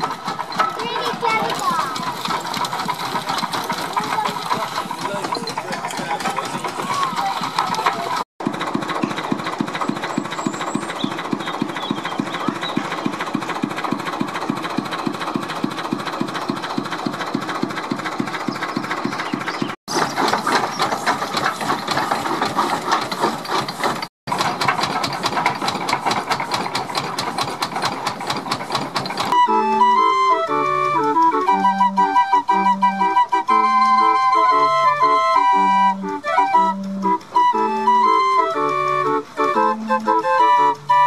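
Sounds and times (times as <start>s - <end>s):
fair organ playing: 0.0s - 23.0s, 29.2s - 41.0s
fast mechanical clatter: 0.0s - 41.0s
locomotive engine idling: 0.0s - 41.0s.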